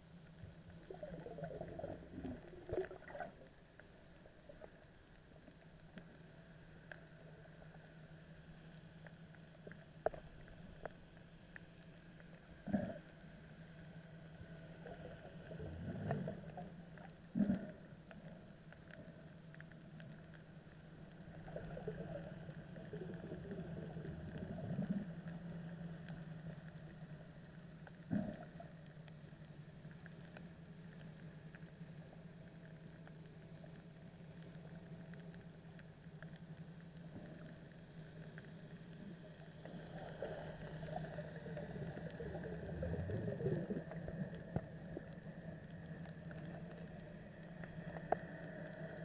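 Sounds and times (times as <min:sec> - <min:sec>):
water gurgling: 0:00.0 - 0:07.9, 0:12.2 - 0:49.0
boat motor drone underwater: 0:00.0 - 0:49.0
faint clicks: 0:00.1 - 0:49.0
bubbling gurgles: 0:00.4 - 0:03.6, 0:14.8 - 0:17.9, 0:21.2 - 0:25.5, 0:39.0 - 0:48.3.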